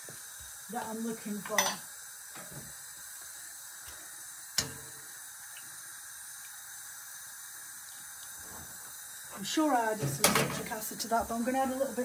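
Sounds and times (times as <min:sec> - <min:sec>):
pot of water hissing on stove: 0:00.0 - 0:12.0
metal tongs clinking pot: 0:01.5 - 0:01.8.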